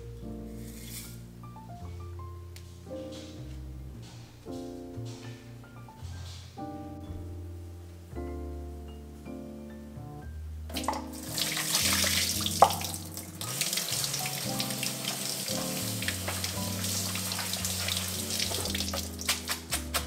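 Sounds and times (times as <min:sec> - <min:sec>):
faucet running into a colander: 0:10.8 - 0:19.4.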